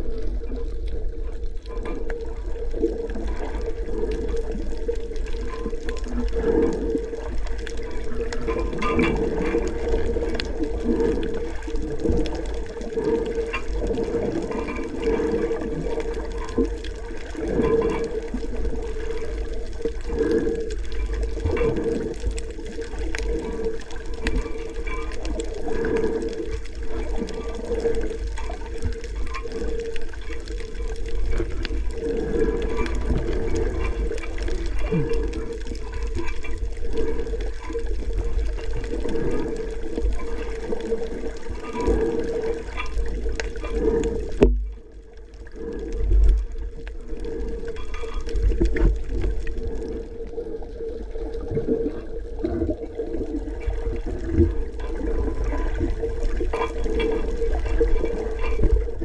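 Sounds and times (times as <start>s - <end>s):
steady low rumble: 0.0s - 2.9s
underwater water sloshing: 0.0s - 59.0s.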